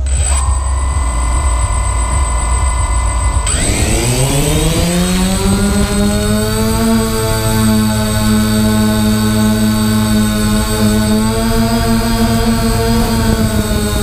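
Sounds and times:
drone propellers whining: 0.0s - 14.0s.

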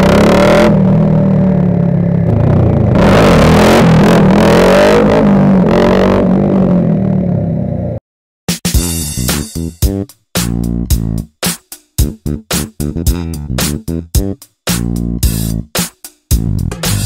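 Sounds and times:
motorcycle engine revving: 0.0s - 7.9s.

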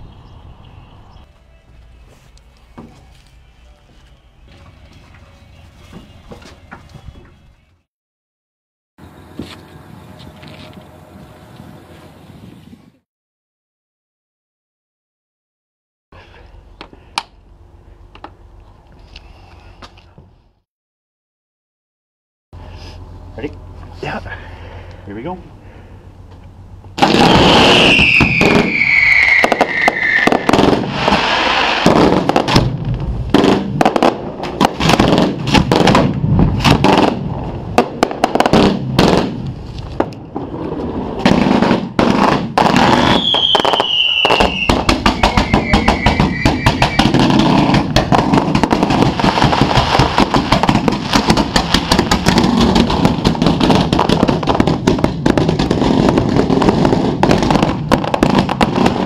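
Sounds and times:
falling firework whistle: 27.0s - 31.9s, 42.7s - 47.9s
fireworks launching and bursting: 27.0s - 59.0s.

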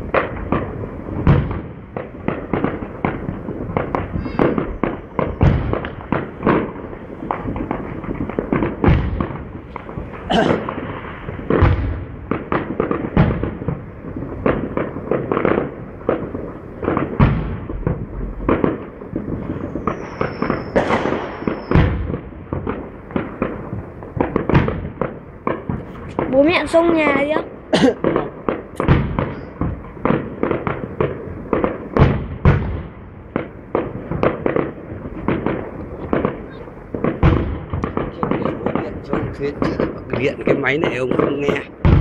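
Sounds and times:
fireworks bursting and crackling: 0.0s - 42.0s
heavy firework booms: 0.0s - 42.0s.

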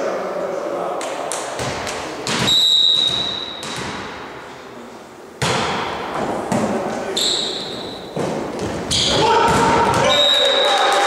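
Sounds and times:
ball thuds: 1.6s - 4.2s, 5.4s - 6.9s, 8.1s - 10.1s
referee's whistle blast: 2.4s - 3.6s, 10.0s - 10.8s.

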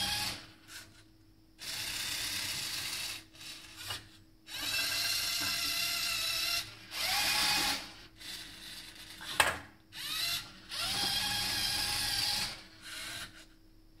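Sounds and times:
servo motors whirring: 10.0s - 13.4s.

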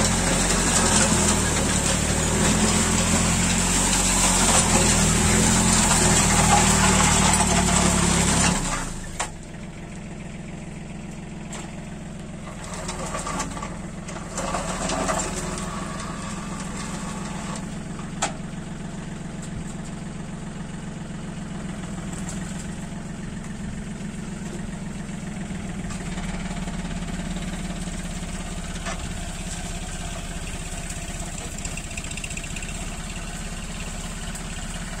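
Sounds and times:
rotary tiller churning soil: 0.0s - 35.0s
tractor diesel engine under load: 0.0s - 35.0s.

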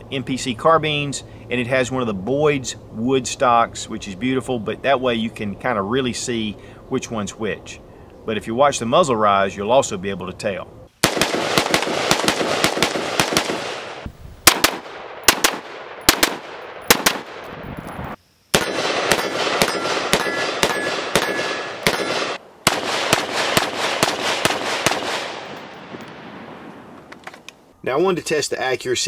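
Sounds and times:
rifle shots: 11.0s - 17.7s, 18.5s - 27.4s.

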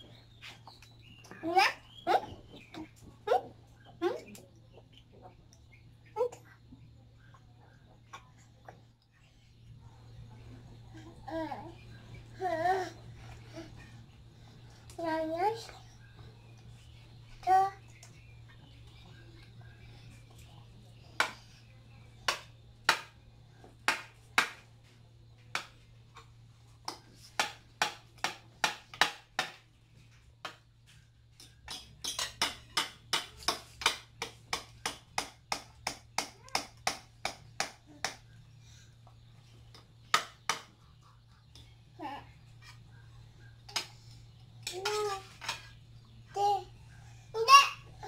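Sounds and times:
cutlery clinking against ceramic bowls: 31.4s - 34.0s
toddler's voice: 47.4s - 48.0s.

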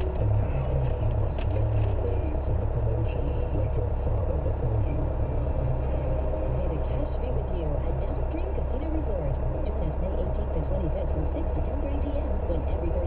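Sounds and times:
car engine idling: 0.0s - 13.0s.

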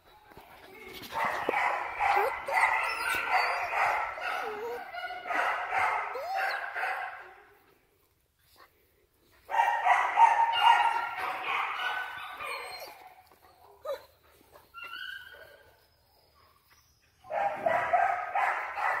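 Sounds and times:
puppies yipping and whining: 0.8s - 5.3s, 10.5s - 17.9s.

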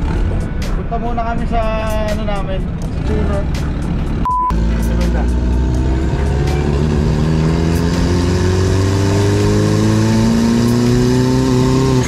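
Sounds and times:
car engine accelerating: 0.0s - 0.9s, 2.6s - 12.0s.

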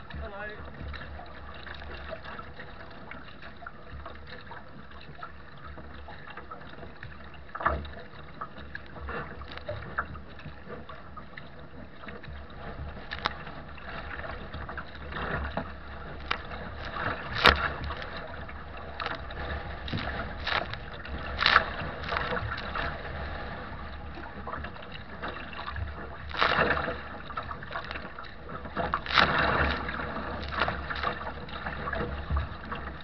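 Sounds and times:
water rushing along hull: 0.0s - 33.0s
waves slapping against bow: 0.0s - 33.0s.

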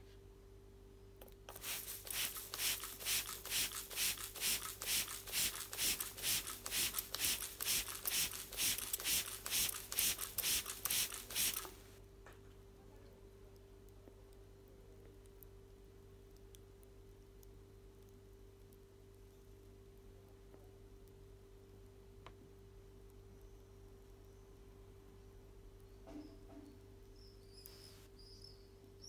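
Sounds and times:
spray bottle squirts: 1.5s - 11.8s.

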